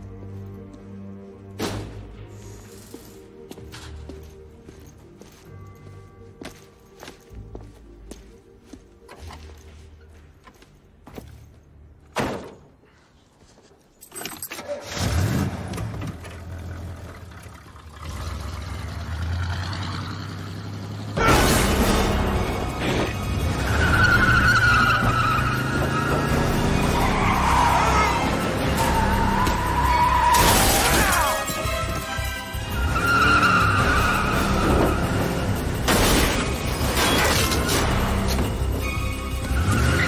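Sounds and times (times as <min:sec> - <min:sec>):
tense film score: 0:00.0 - 0:13.9, 0:14.5 - 0:40.0
tyres squealing: 0:22.7 - 0:35.6.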